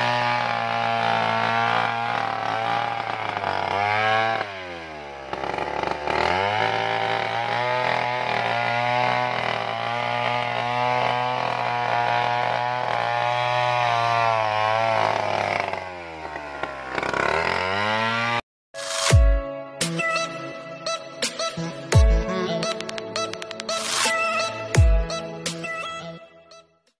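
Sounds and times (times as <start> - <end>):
chainsaw cutting through log: 0.0 - 18.4.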